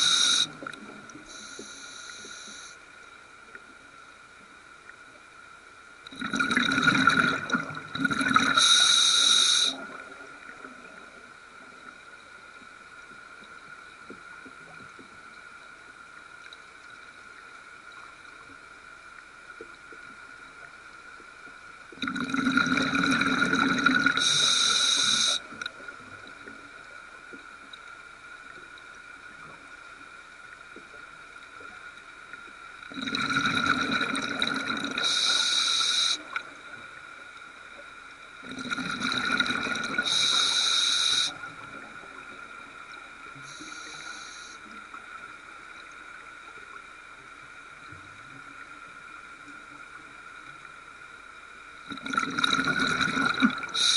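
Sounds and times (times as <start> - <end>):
faint steady whine: 0.0 - 53.9
underwater exhaled bubbles: 6.1 - 11.8, 21.9 - 27.4, 32.8 - 37.0, 38.4 - 45.3, 51.8 - 53.9.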